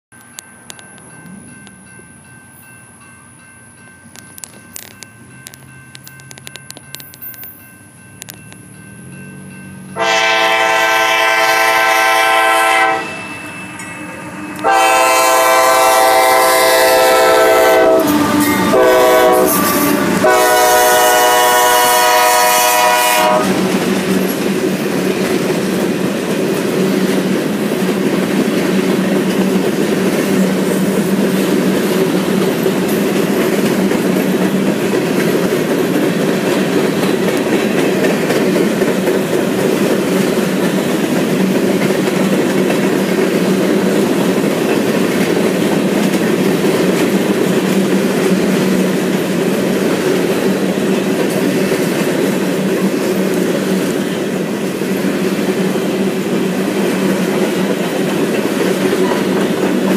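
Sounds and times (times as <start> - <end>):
freight train cars rumbling past: 0.2 - 59.9
locomotive air horn blasts: 10.0 - 13.5, 14.2 - 23.8
wheels clacking over rail joints: 23.2 - 59.9.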